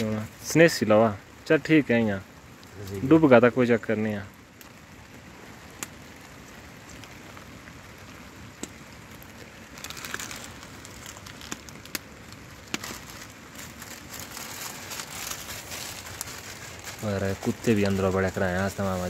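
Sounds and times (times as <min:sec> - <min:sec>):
heavy rain falling: 0:00.0 - 0:19.0
wood fire crackling and popping: 0:00.0 - 0:19.0.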